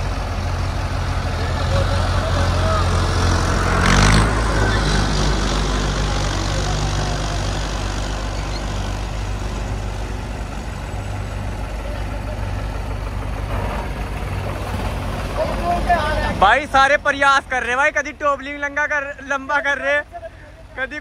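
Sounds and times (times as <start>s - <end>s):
tractor diesel engine droning: 0.0s - 21.0s.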